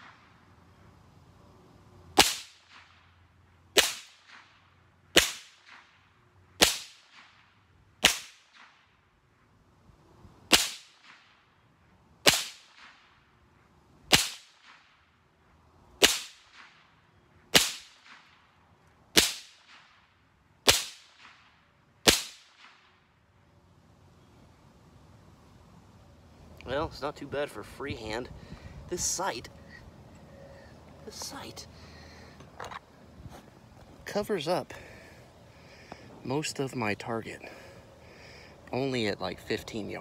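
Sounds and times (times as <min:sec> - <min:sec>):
rifle shots: 0:02.2 - 0:03.0, 0:12.2 - 0:13.0, 0:14.1 - 0:14.8, 0:17.5 - 0:18.3, 0:22.0 - 0:22.9.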